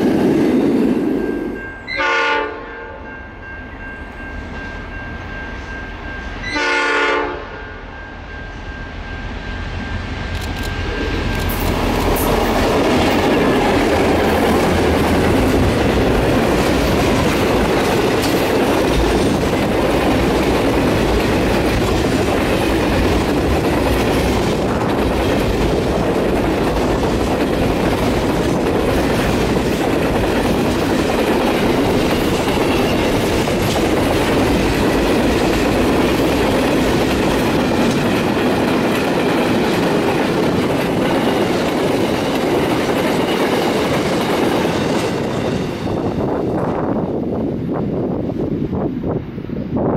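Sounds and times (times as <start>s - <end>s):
train wheels clattering: 11.1s - 46.7s.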